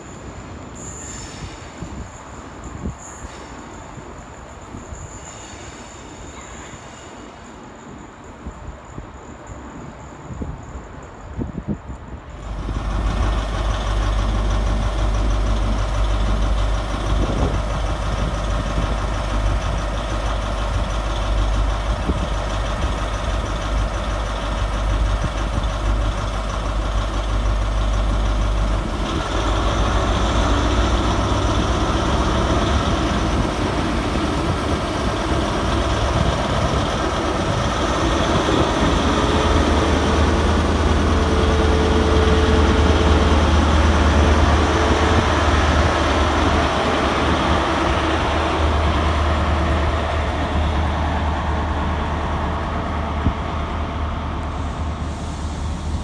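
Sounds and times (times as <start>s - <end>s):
rising train whine: 0.0s - 56.0s
diesel train engine revving: 12.3s - 56.0s.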